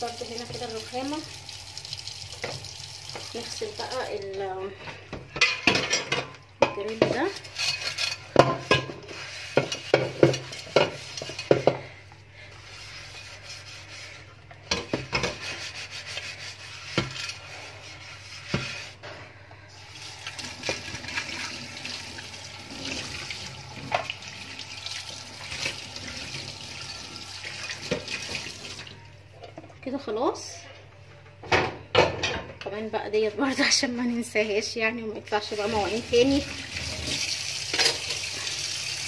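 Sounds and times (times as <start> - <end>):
tap water running: 0.0 - 11.9, 19.8 - 29.1, 35.5 - 39.0
sponge scrubbing grill pan: 6.8 - 19.2, 35.4 - 38.2.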